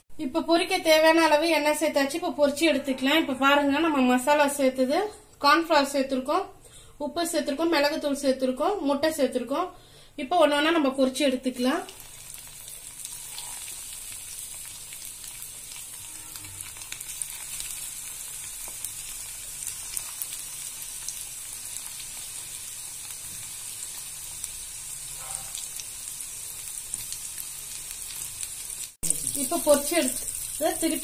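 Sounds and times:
food deep-frying in oil: 0:11.0 - 0:31.0.

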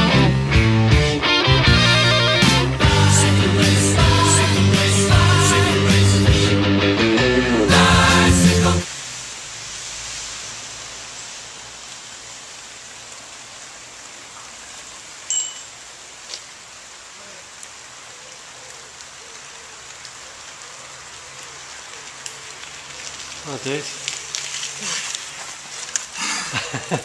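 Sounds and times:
light rain hissing: 0:00.0 - 0:27.0
water drip ticks: 0:17.6 - 0:27.0.

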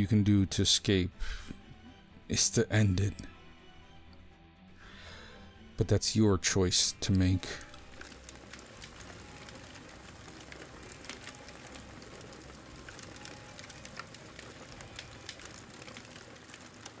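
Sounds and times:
campfire crackling: 0:07.4 - 0:17.0.

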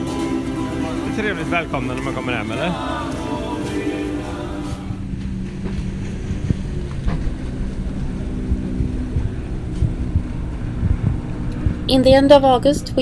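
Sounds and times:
wind buffeting microphone: 0:04.4 - 0:13.0.

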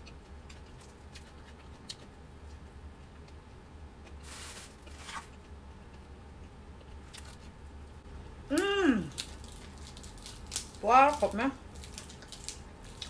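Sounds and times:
woman's voiced sound with mouth full: 0:08.5 - 0:09.1
chewing and rustling: 0:09.1 - 0:13.0.

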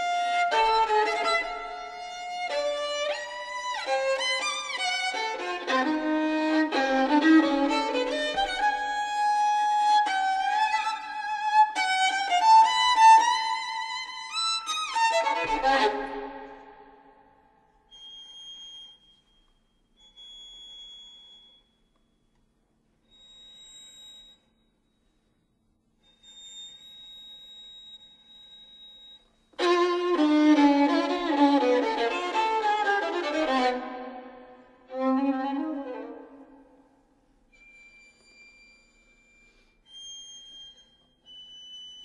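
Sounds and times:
solo violin: 0:00.0 - 0:17.1, 0:29.5 - 0:36.8.

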